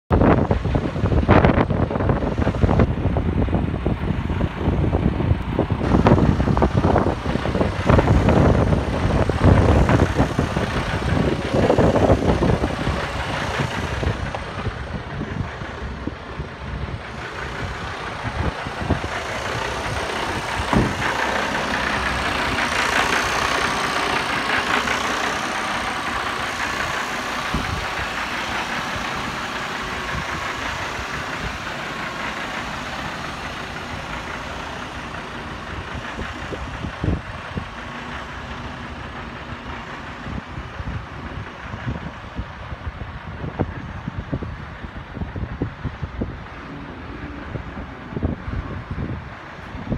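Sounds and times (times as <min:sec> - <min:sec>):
diesel truck engine idling: 0:00.1 - 0:49.9.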